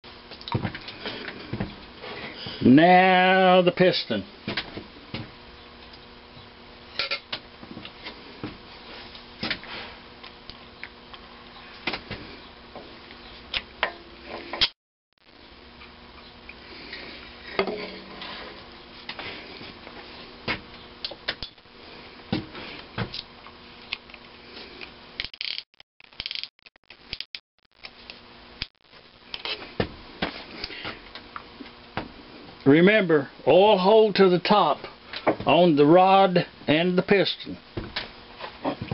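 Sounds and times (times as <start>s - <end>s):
faint steady hum: 0.1s - 25.3s.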